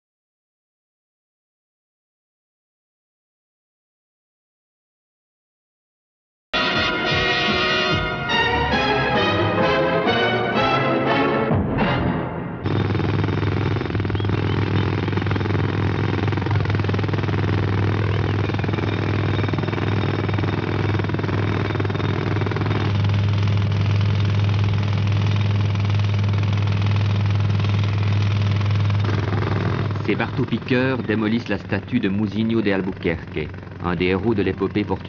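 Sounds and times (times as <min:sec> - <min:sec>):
low engine-like hum: 0:12.6 - 0:35.0
pneumatic jackhammers: 0:12.6 - 0:35.0.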